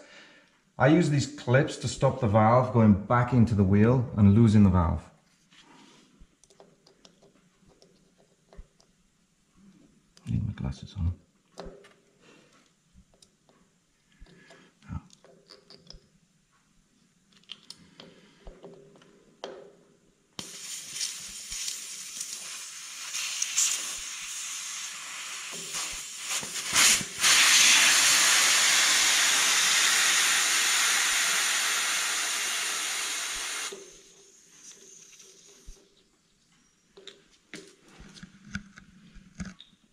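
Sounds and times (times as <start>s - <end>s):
air hissing from tyre valve: 20.4s - 35.8s.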